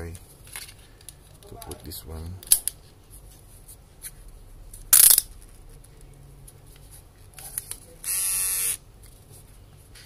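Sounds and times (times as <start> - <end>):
electric trimmer buzzing: 8.1 - 8.8.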